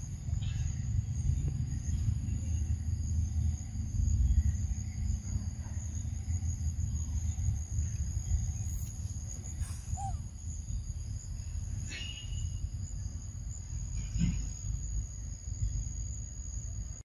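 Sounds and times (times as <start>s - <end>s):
low rumble: 0.0s - 11.9s
insect chorus shrilling: 4.0s - 16.2s.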